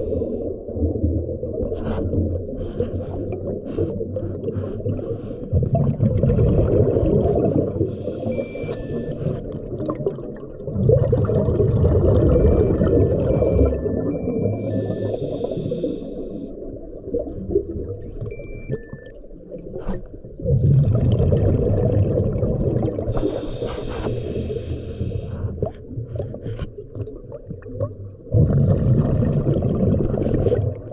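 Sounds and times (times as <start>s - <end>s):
exhaled bubbles rushing: 0.0s - 15.6s, 16.5s - 18.8s, 19.5s - 23.4s, 25.6s - 30.9s
diver breathing through regulator: 7.8s - 9.5s, 14.2s - 16.6s, 23.1s - 25.7s
hiss: 23.2s - 25.4s.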